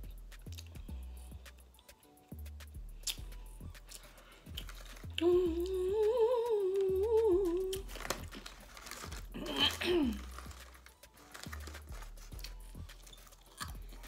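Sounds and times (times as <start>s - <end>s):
woman humming: 5.1s - 8.1s, 9.3s - 10.3s.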